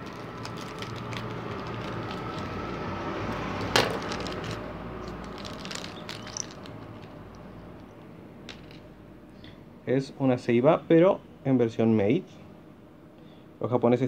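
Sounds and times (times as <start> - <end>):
plastic packaging clicks and crinkles: 0.0 - 2.6, 3.6 - 7.4
sharp plastic crack: 0.0 - 2.6
low background rumble: 0.0 - 10.0.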